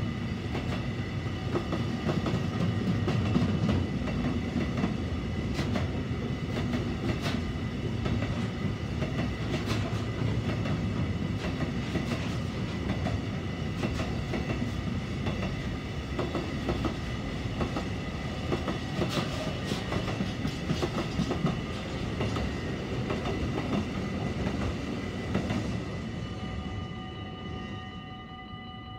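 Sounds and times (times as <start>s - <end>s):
train wheels clicking over rail joints: 0.4s - 25.8s
thin steady high tone: 25.9s - 28.9s.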